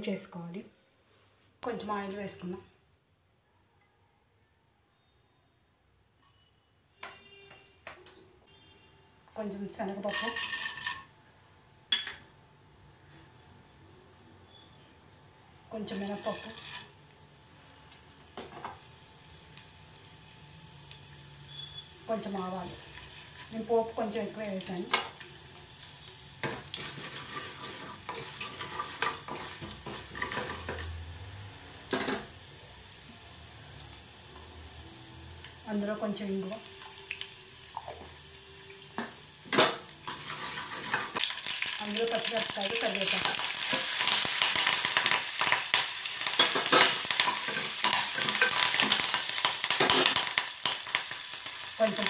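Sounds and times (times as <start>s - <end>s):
seeds sizzling in hot oil: 9.9s - 11.0s, 14.4s - 52.0s
spatula scraping a pot: 26.7s - 30.8s.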